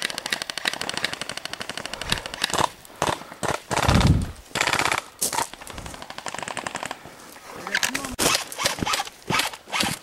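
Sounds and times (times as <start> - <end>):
airsoft guns firing bursts: 0.0 - 5.4.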